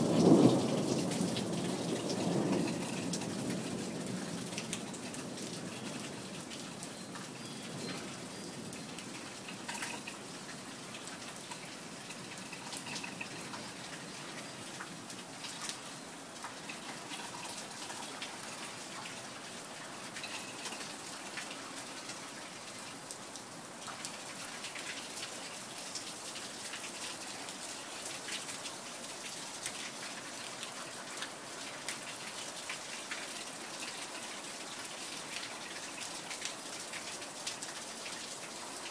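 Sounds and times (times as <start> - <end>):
raindrops ticking close by: 0.0 - 38.9
steady rain falling: 0.0 - 38.9.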